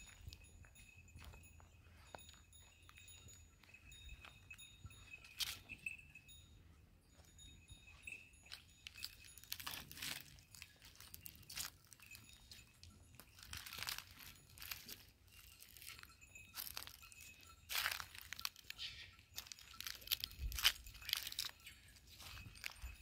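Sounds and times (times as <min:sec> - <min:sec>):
steps on stony ground: 0:00.0 - 0:06.4, 0:07.0 - 0:23.0
faint bell tinkling: 0:00.0 - 0:23.0
animals tearing and crunching grass: 0:09.0 - 0:12.2, 0:13.3 - 0:21.6.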